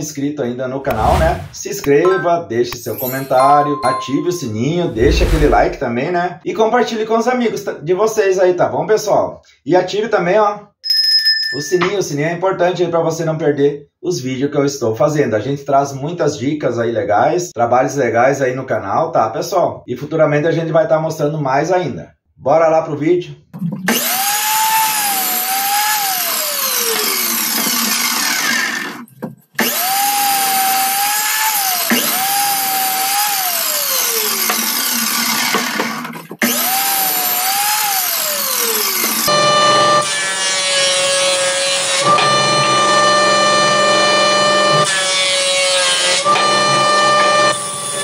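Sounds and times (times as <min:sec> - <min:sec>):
miter saw cutting wood: 0:04.9 - 0:05.8, 0:23.9 - 0:29.0, 0:29.6 - 0:48.0.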